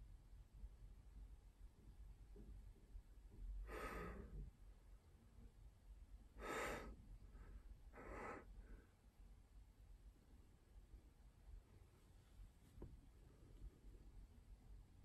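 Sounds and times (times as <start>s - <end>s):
quiet breaths out: 3.4s - 4.6s, 6.4s - 9.1s.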